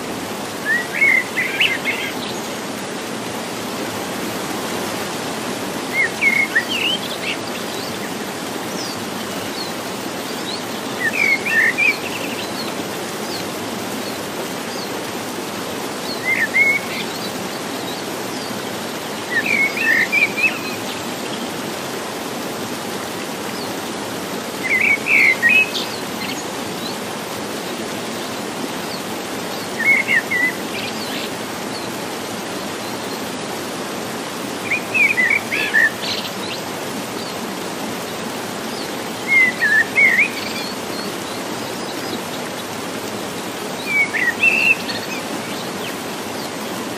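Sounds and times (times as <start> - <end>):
rocky stream rushing: 0.0 - 46.9
songbird chirping: 38.2 - 42.8, 43.7 - 46.6.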